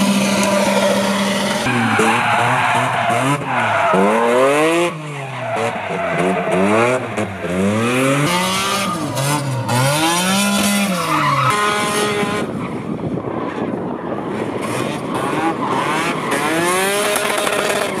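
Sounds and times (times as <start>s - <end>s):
car engine revving: 0.0s - 12.5s.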